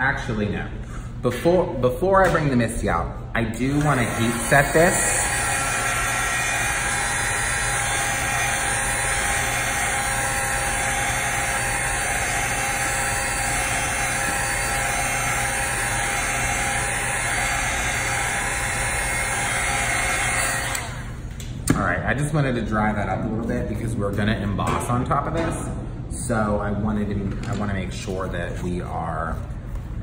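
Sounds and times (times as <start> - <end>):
heat gun fan blowing: 1.6 - 21.8.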